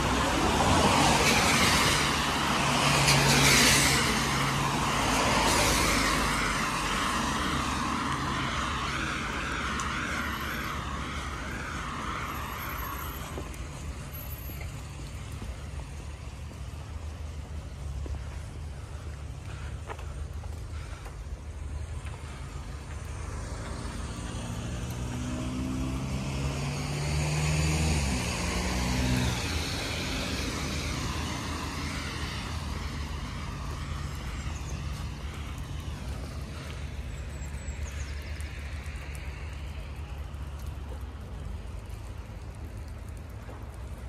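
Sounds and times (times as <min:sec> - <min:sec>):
tyres hissing on wet road: 0:00.0 - 0:44.0
car engine passing: 0:23.0 - 0:36.7.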